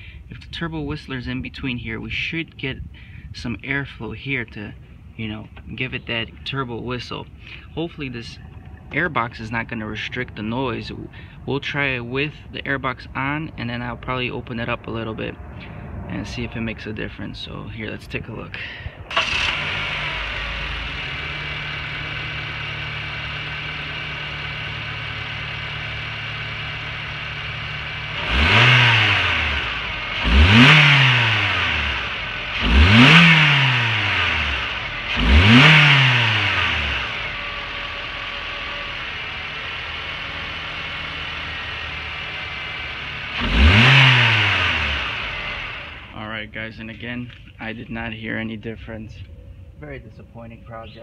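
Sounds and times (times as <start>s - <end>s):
car engine idling and revving: 7.2s - 46.2s.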